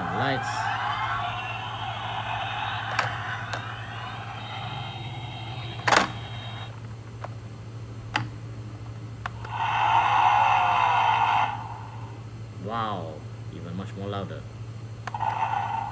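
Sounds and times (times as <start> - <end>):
tinny toy engine revving: 0.0 - 6.7.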